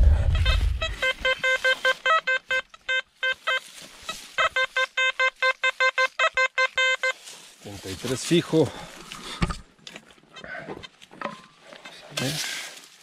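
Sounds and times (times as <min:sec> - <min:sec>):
metal detector beeping: 0:00.0 - 0:07.3.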